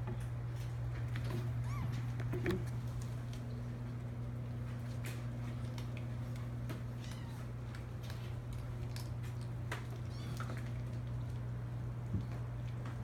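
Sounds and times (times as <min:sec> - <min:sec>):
kittens meowing: 0:01.6 - 0:02.0, 0:10.1 - 0:10.6.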